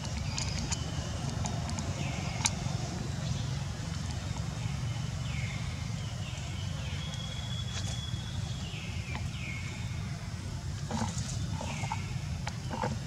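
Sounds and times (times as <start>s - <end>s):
low outdoor rumble: 0.0s - 13.0s.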